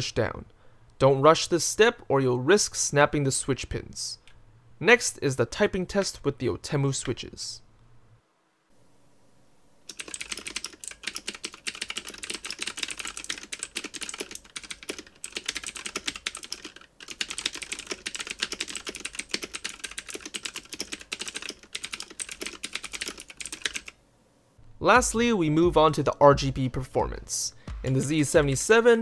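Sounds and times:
fast mechanical keyboard clicks: 0:09.9 - 0:24.0.

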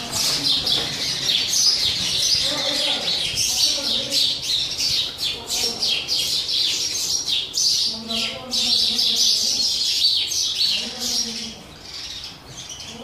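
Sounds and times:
sparrows chirping: 0:00.0 - 0:13.0.

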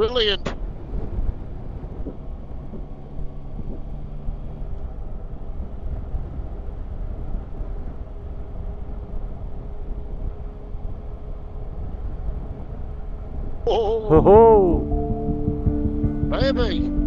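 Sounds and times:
wind rumble on microphone: 0:00.0 - 0:14.2
road noise: 0:00.0 - 0:17.0
motorcycle engine: 0:14.1 - 0:17.0.

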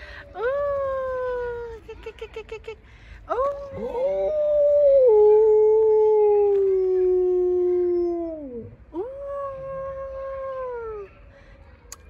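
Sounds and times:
dog howling: 0:03.5 - 0:11.0.

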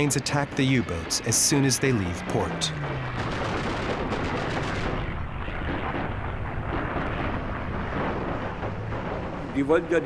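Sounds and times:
automatic gunfire: 0:03.2 - 0:06.1.

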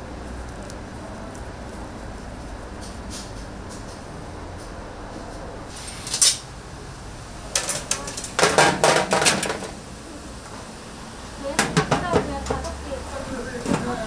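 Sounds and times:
metal kitchenware clattering: 0:07.6 - 0:09.8.

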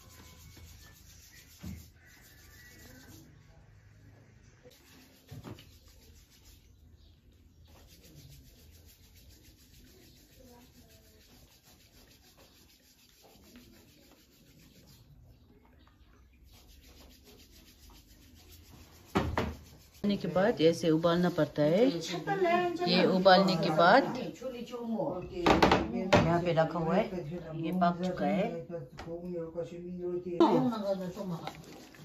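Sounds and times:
palms rubbing dough: 0:00.0 - 0:03.9, 0:04.7 - 0:23.8, 0:30.7 - 0:32.0.

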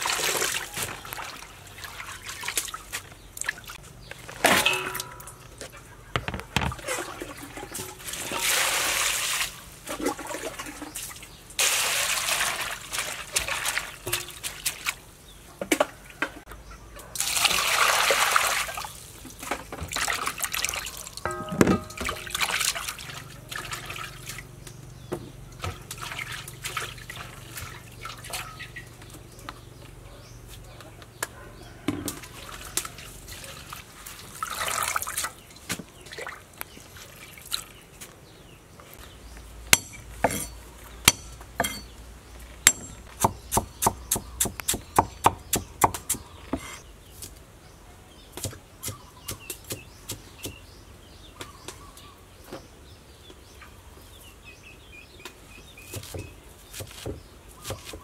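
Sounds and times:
water sloshing in a metal basin: 0:00.0 - 0:16.4, 0:17.2 - 0:29.3, 0:31.8 - 0:37.9
cleaver chopping on wooden board: 0:42.7 - 0:46.7.

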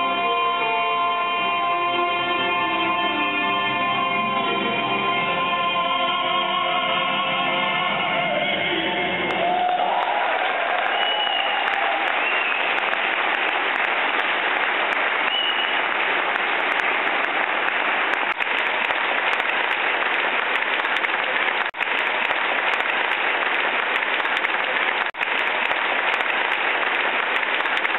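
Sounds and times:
audience applauding: 0:08.9 - 0:27.9.

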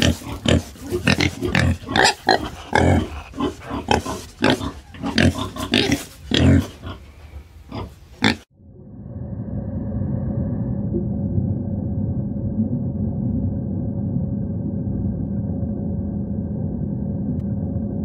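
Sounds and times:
wild boar grunting: 0:00.0 - 0:08.5.

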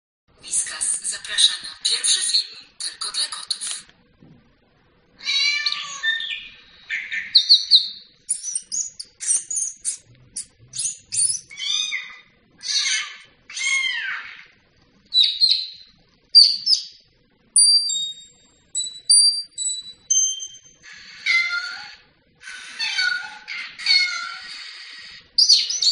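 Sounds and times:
recorded bird chirps from laptop: 0:05.2 - 0:14.5, 0:15.1 - 0:25.9.

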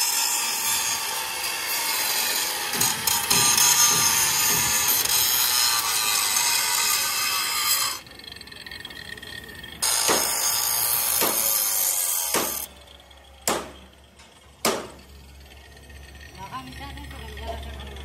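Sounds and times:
power tool grinding on metal: 0:00.0 - 0:18.0
sharp knocks: 0:09.8 - 0:10.4, 0:11.2 - 0:11.4, 0:12.3 - 0:12.7, 0:13.4 - 0:13.8, 0:14.6 - 0:15.0.

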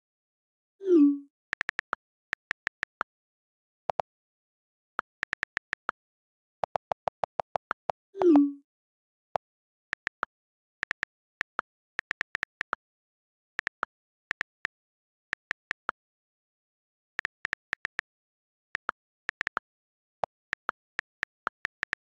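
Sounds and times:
on-screen keyboard clicks: 0:01.0 - 0:03.0, 0:05.0 - 0:05.9, 0:20.3 - 0:22.0.

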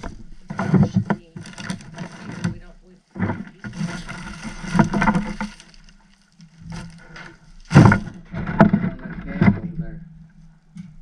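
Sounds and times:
items being handled: 0:00.0 - 0:09.7
plastic bag rustling: 0:03.4 - 0:08.2.

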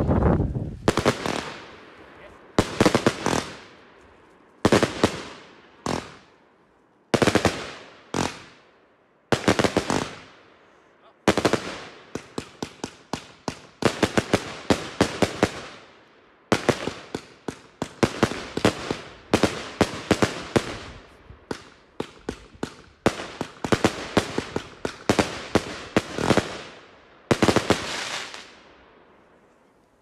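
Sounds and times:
fireworks bangs: 0:00.0 - 0:04.0, 0:04.6 - 0:06.4, 0:07.2 - 0:08.6, 0:09.3 - 0:10.4, 0:16.5 - 0:28.6.

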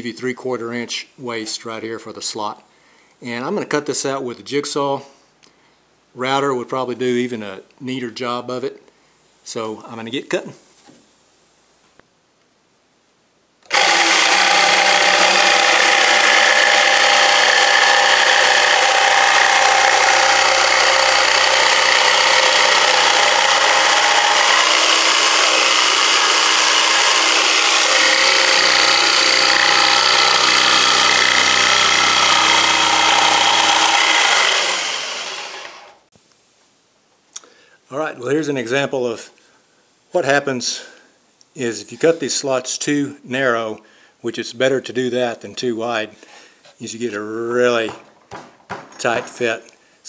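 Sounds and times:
jigsaw cutting plywood: 0:13.7 - 0:36.0.

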